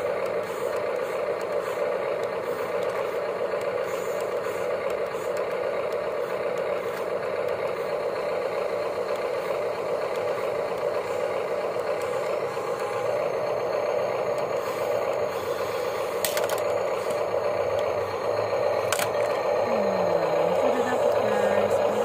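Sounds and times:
electric gear motors whirring: 0:00.0 - 0:22.0
plastic toys clattering: 0:16.2 - 0:16.8, 0:18.9 - 0:19.4.

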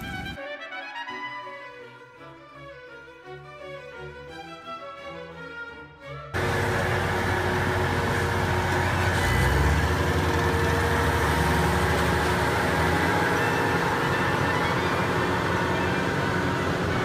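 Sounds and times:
diesel engine running: 0:06.4 - 0:17.0.

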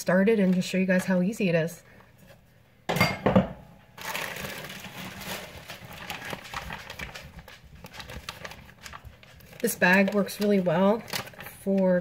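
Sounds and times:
plastic bags crinkling: 0:04.0 - 0:12.0.

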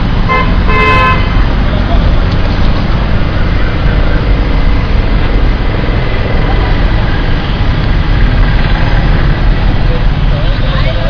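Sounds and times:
loud traffic rumble: 0:00.0 - 0:11.0.

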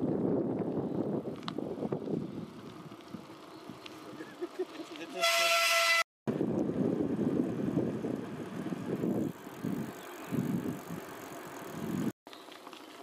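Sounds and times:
wind rumbling on microphone: 0:00.0 - 0:04.3, 0:06.3 - 0:12.1.

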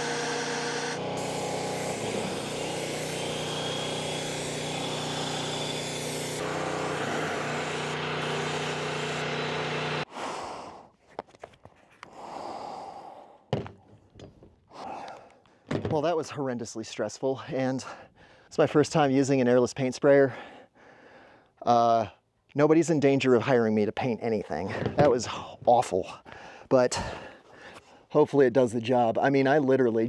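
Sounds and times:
paint sprayer pump humming: 0:00.0 - 0:10.1.

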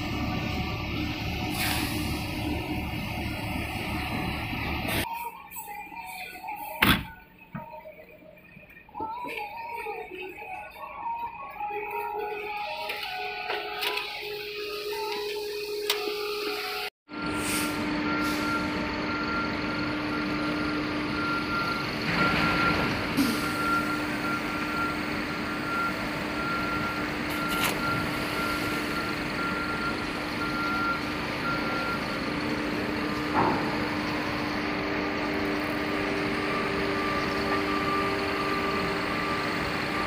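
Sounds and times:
machinery engine hum: 0:00.0 - 0:06.5, 0:17.1 - 0:40.0
reversing alarm beeping: 0:00.1 - 0:40.0.

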